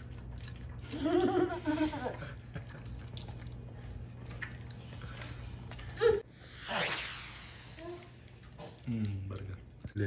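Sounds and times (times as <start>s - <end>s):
chewing food: 0.0s - 1.4s, 2.1s - 6.0s, 8.2s - 10.0s
steady low hum: 0.0s - 10.0s.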